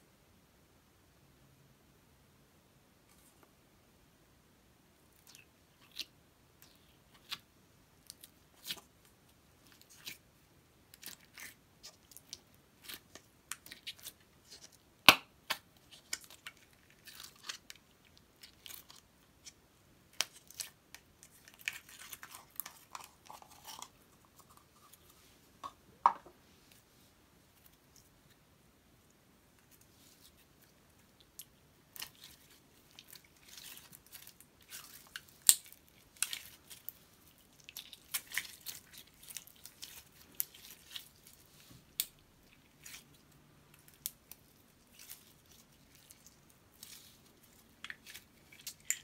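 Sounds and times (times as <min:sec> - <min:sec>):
slime crackly squishes: 0:15.5 - 0:25.0, 0:29.6 - 0:49.0.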